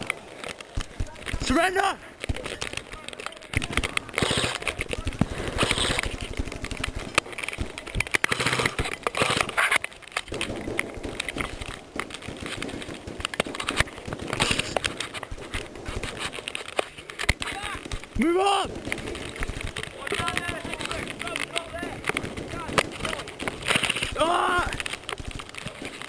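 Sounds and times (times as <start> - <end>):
dry grass rustling and crackling: 0.0 - 26.0
footfalls: 0.0 - 26.0
stems brushing against camera: 0.0 - 26.0.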